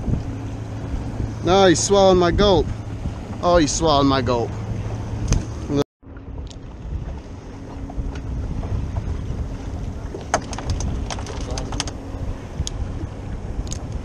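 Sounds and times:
wind buffeting microphone: 0:00.0 - 0:14.0
sharp clicks: 0:10.3 - 0:12.0.

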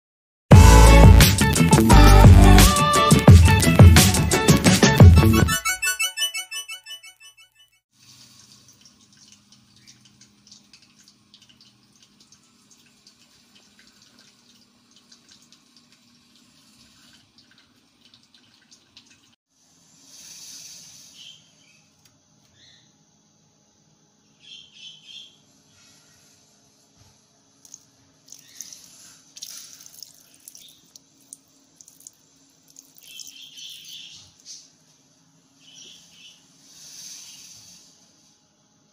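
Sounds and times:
liquid pouring: 0:08.0 - 0:19.4, 0:27.6 - 0:33.5
water drips: 0:08.0 - 0:19.4, 0:27.6 - 0:34.0
light crackle of ticks: 0:08.4 - 0:16.5.

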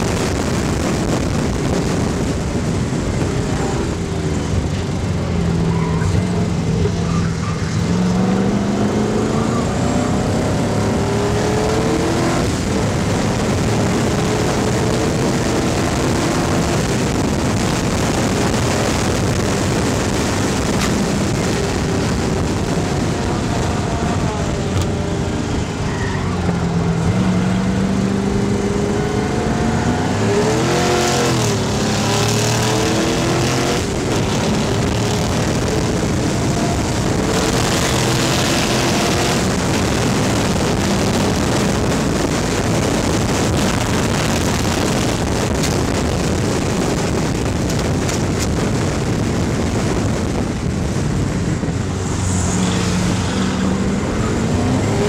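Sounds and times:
race car engine accelerating: 0:00.0 - 0:49.2, 0:49.8 - 0:55.0
wind rushing over microphone: 0:00.0 - 0:55.0.

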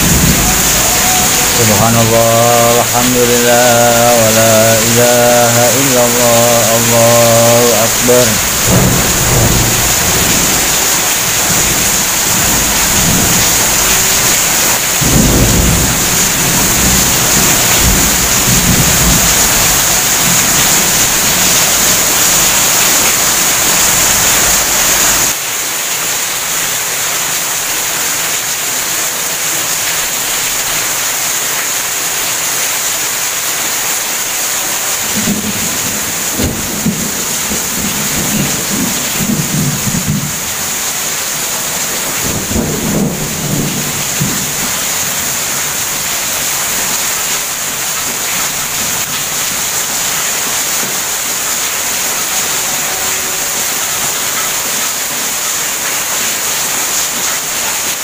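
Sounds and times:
rolling thunder rumbles: 0:00.0 - 0:05.7, 0:06.8 - 0:23.1, 0:35.1 - 0:40.7, 0:41.8 - 0:46.0
heavy rain pouring: 0:00.0 - 0:58.0.

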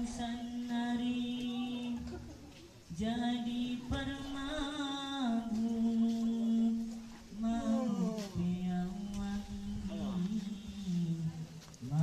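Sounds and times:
person chanting: 0:03.0 - 0:12.0.

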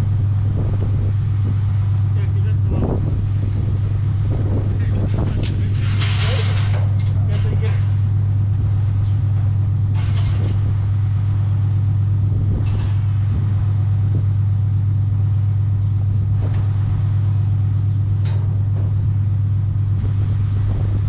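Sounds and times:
loud steady low hum: 0:00.0 - 0:21.0
metal clanks and rattles: 0:04.4 - 0:13.4, 0:15.2 - 0:20.0.

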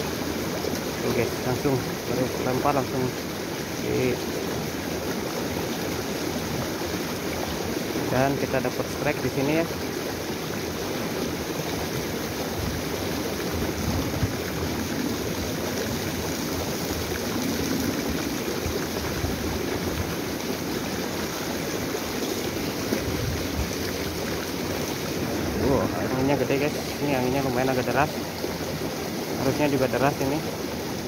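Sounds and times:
stream rushing over rocks: 0:00.0 - 0:31.0
wind rumbling on microphone: 0:12.5 - 0:20.3, 0:22.9 - 0:24.4, 0:25.0 - 0:27.5.

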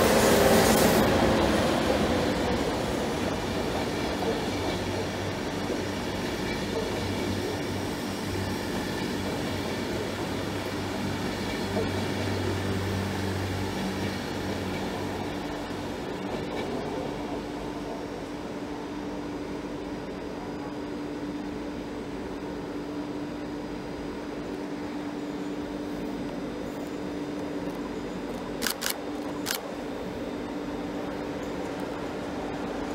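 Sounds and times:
train wheels on rails: 0:00.0 - 0:20.3.

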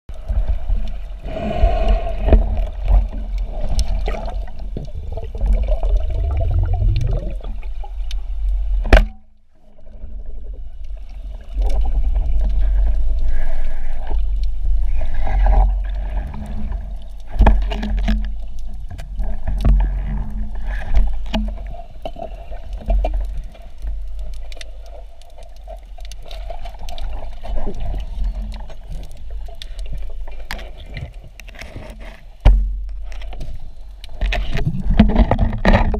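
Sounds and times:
underwater rumble of moving water: 0:00.1 - 0:35.9
sharp clicks and knocks: 0:30.5 - 0:35.9.

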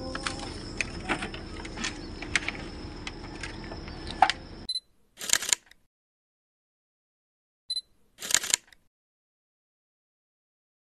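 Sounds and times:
camera shutter click: 0:05.2 - 0:05.8, 0:08.2 - 0:08.8.

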